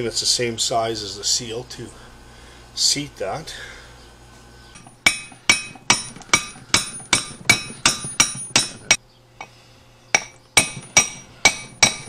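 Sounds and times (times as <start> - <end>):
hammer striking metal: 4.8 - 9.0, 10.2 - 12.0.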